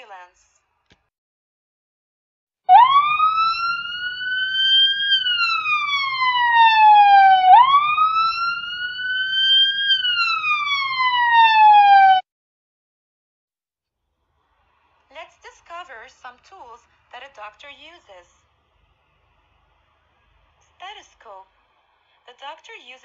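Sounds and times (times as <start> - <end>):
ambulance siren wailing: 2.7 - 12.2
faint low rumble: 18.2 - 22.3.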